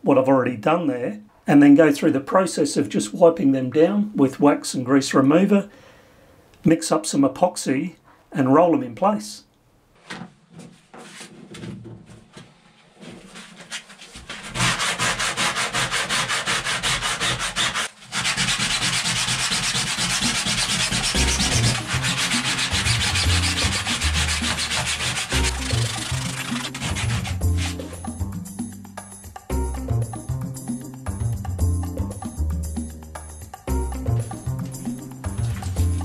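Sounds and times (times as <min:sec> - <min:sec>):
sandpaper scrubbing fibreglass: 0:13.2 - 0:28.2, 0:35.3 - 0:36.0.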